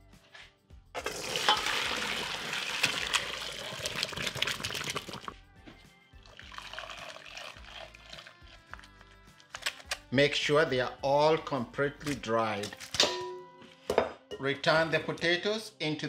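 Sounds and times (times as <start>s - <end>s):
potatoes knocking in colander: 1.0s - 5.3s
water pouring into metal colander: 1.0s - 5.4s, 6.3s - 8.7s.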